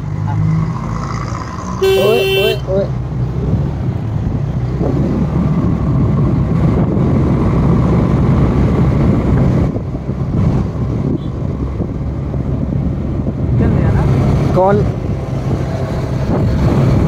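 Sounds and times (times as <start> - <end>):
wind buffeting microphone: 3.4 - 17.0.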